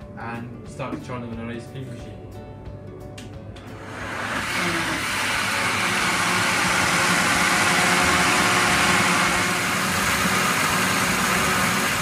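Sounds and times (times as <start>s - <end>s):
blender running: 3.6s - 12.0s.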